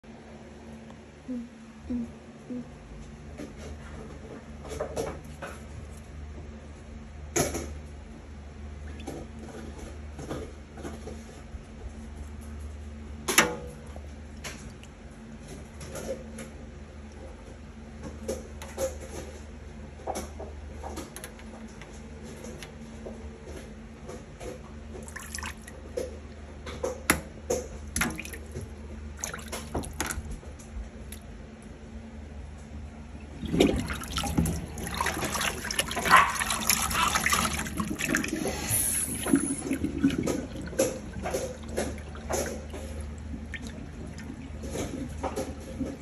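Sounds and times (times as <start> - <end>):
water dripping in metal sink: 27.9 - 30.2
drain gurgling: 33.2 - 46.0
water rushing down drain: 33.2 - 46.0.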